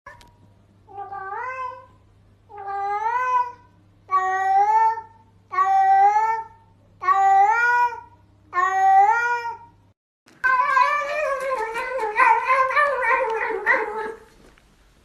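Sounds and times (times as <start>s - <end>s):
cat meowing: 0.9s - 1.9s, 10.4s - 14.3s.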